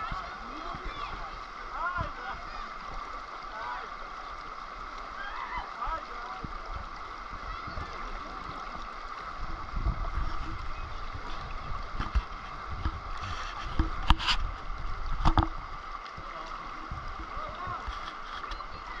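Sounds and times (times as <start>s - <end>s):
river water rushing: 0.0s - 19.0s
water slapping thumps: 6.3s - 19.0s.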